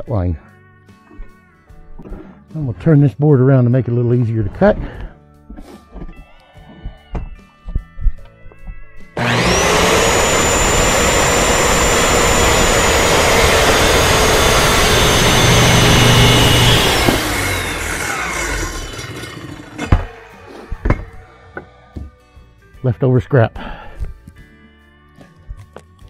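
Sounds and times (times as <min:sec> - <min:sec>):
saw cutting through board: 0:09.2 - 0:21.2
circular saw motor whine: 0:09.2 - 0:21.3.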